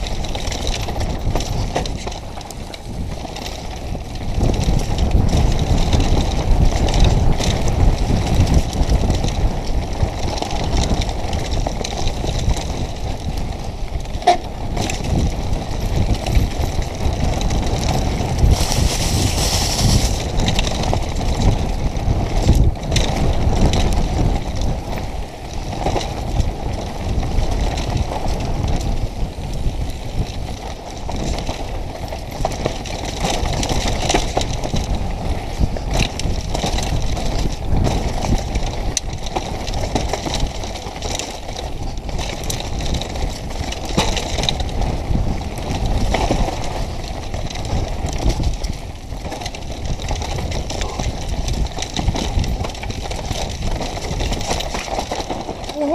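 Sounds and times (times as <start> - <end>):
bike rattles and knocks: 0.0 - 55.9
wind on microphone: 0.0 - 55.9
tyres over dirt and stones: 14.8 - 21.4.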